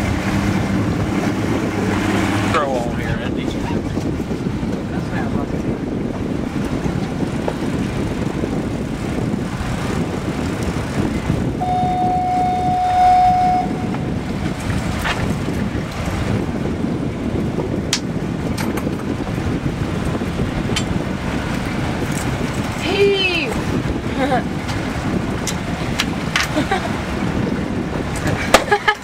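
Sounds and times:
outboard motor running: 0:00.0 - 0:29.0
wind and water noise: 0:00.0 - 0:29.0
steady high tone: 0:11.6 - 0:14.0.

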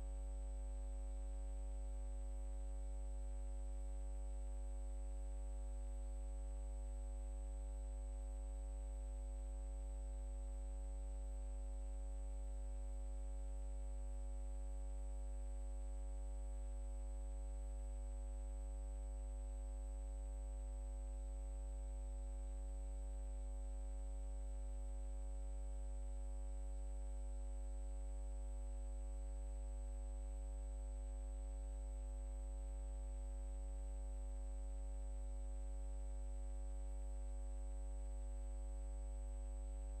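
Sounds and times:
electrical hum with buzz: 0:00.0 - 0:40.0
faint high whine: 0:34.6 - 0:40.0.

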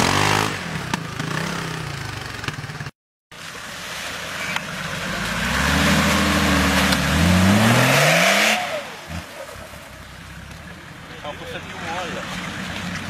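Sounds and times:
engine revving: 0:00.0 - 0:02.9, 0:04.4 - 0:09.8
tyres churning mud: 0:03.4 - 0:13.0.

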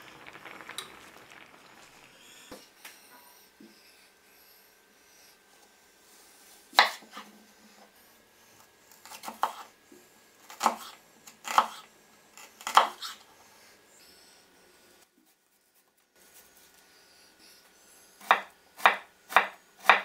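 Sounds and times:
knife cutting onion: 0:06.7 - 0:07.3, 0:09.0 - 0:09.7, 0:10.5 - 0:11.8, 0:12.4 - 0:13.2, 0:18.2 - 0:20.0.

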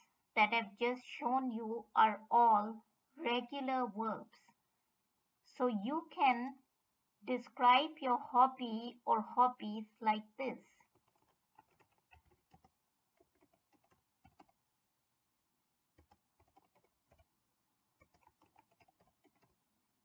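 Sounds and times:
computer keyboard typing: 0:10.8 - 0:14.6, 0:16.0 - 0:17.3, 0:18.0 - 0:19.6.

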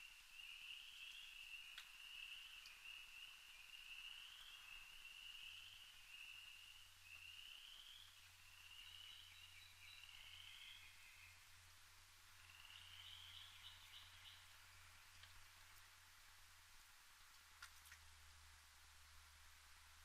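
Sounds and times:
distant frog chorus trilling: 0:00.0 - 0:15.9
low steady hum: 0:00.0 - 0:20.0.

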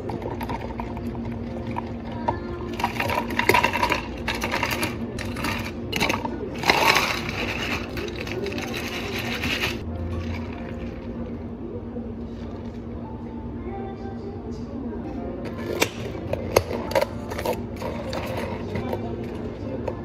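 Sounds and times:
steady background hum: 0:00.0 - 0:20.0
ice cubes clattering into cups: 0:02.7 - 0:10.7.

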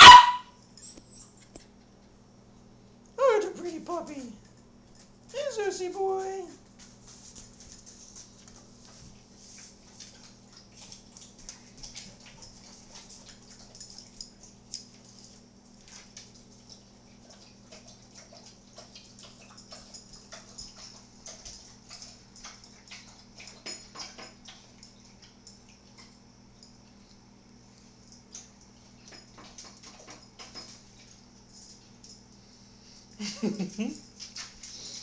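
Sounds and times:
dog claws clicking on floor: 0:06.7 - 0:26.8.

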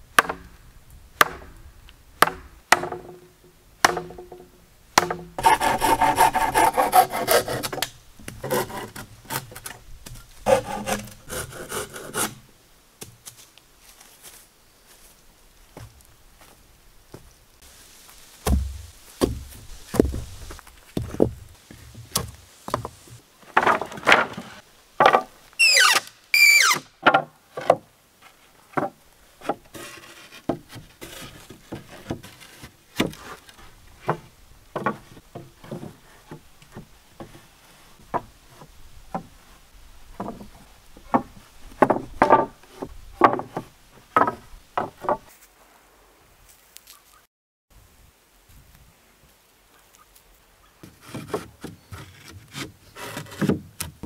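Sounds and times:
wooden boards knocking: 0:02.2 - 0:05.3, 0:18.4 - 0:20.3, 0:21.0 - 0:25.3, 0:40.2 - 0:45.2
high squeaks: 0:25.6 - 0:26.9.

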